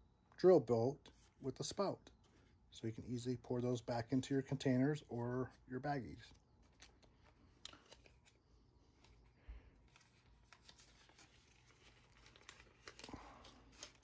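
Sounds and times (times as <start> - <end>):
plastic bag rustling: 9.8 - 14.0.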